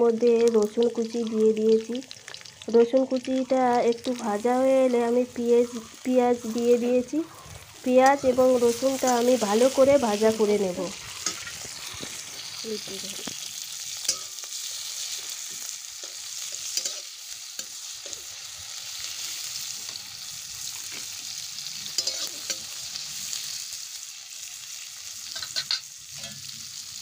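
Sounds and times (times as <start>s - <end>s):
onions sizzling in hot oil: 0.0s - 27.0s
metal spatula scraping pan: 11.0s - 12.5s, 22.0s - 22.7s, 25.3s - 26.5s.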